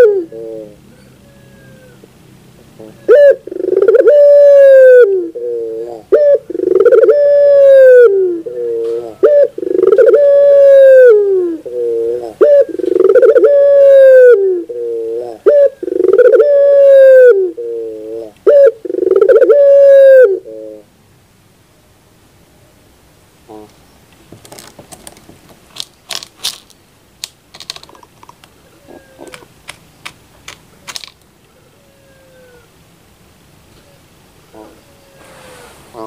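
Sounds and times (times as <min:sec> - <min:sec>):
dove cooing: 0:00.0 - 0:02.1, 0:02.7 - 0:20.9, 0:28.6 - 0:29.6, 0:31.5 - 0:32.8, 0:33.7 - 0:36.0.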